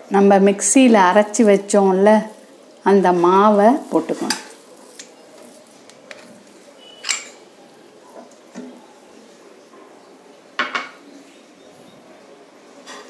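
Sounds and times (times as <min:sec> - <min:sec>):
metal ladle clinking and scraping: 0:06.1 - 0:07.4.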